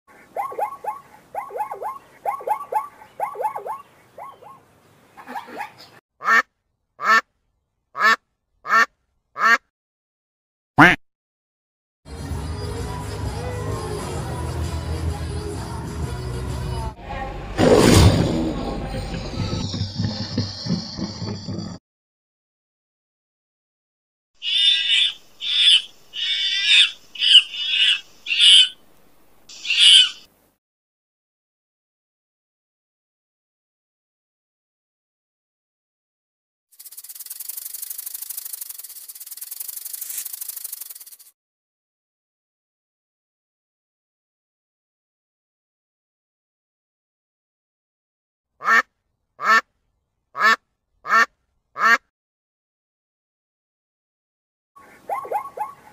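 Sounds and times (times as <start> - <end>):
zebras barking: 0.2 - 4.6, 24.4 - 28.8, 55.0 - 55.9
lemurs crying: 24.4 - 28.8, 29.5 - 30.2.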